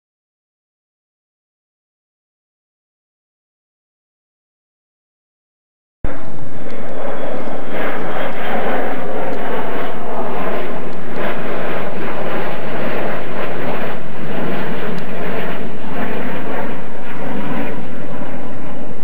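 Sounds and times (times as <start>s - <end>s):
jet engines roaring low pass: 6.0s - 19.0s.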